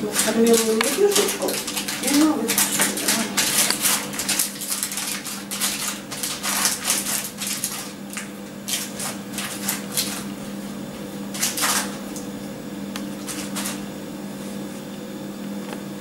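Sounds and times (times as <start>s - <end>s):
baking paper crinkling: 0.0s - 10.6s, 11.3s - 12.2s, 13.1s - 13.8s.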